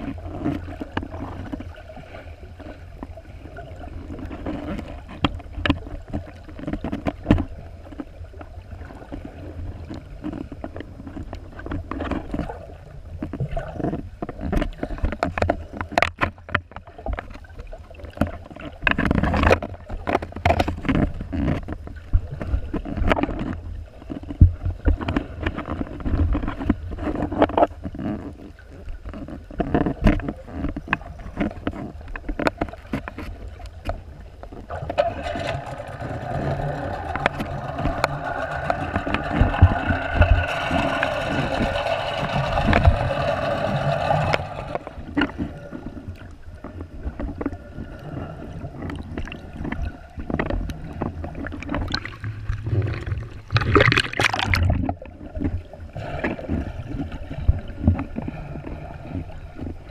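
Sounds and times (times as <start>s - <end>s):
muffled underwater water movement: 0.0s - 59.9s
small knocks and clicks: 13.1s - 17.4s, 29.0s - 47.6s
steady hum: 34.5s - 48.6s
hiss of rushing bubbles: 35.0s - 45.0s.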